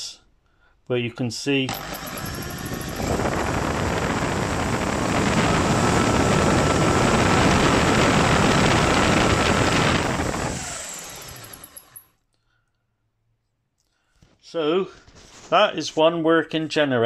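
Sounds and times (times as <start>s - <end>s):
thin steady whine: 1.7s - 12.0s
electric drill spinning generator: 1.7s - 12.1s.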